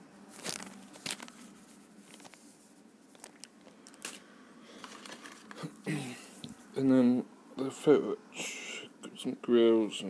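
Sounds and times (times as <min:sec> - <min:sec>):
sharp plastic crackles: 0:00.3 - 0:02.5, 0:03.1 - 0:05.7
plastic bag crinkling: 0:00.3 - 0:04.2.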